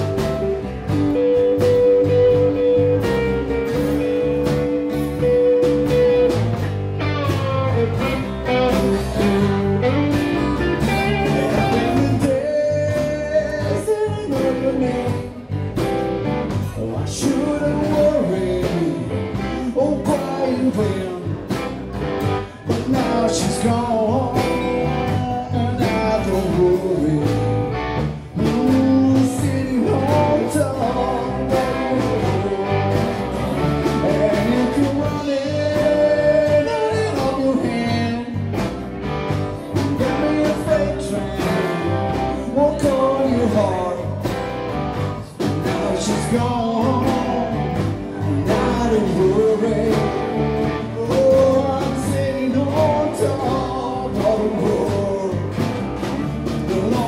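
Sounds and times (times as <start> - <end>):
drums: 0.0 - 57.0
electric guitar: 0.0 - 57.0
man singing: 0.0 - 57.0
strummed acoustic guitar: 0.0 - 57.0.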